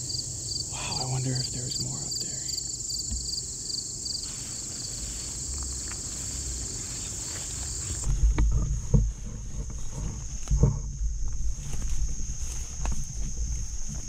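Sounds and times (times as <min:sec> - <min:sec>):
high-pitched insect drone: 0:00.0 - 0:08.2, 0:09.3 - 0:14.0
pulsing insect chirp: 0:00.0 - 0:14.0
low thumps and knocks: 0:07.9 - 0:14.0.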